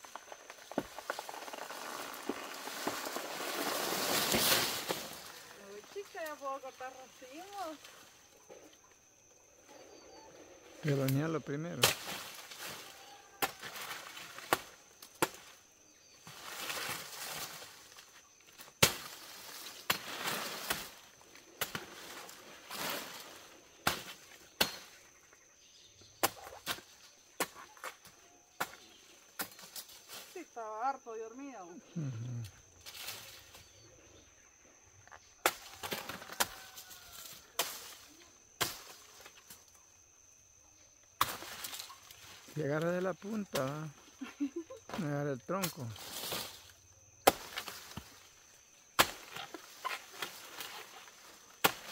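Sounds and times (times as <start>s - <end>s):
dry leaves rustling: 0.0s - 8.3s, 11.9s - 14.6s, 16.2s - 18.3s, 18.9s - 23.8s, 32.7s - 33.8s, 35.5s - 39.7s, 41.2s - 44.6s, 45.5s - 46.8s
machete chopping plant stalk: 11.8s - 12.4s, 13.4s - 15.5s, 18.8s - 19.2s, 23.8s - 25.0s, 47.2s - 48.2s, 49.0s - 50.7s, 51.6s - 51.9s.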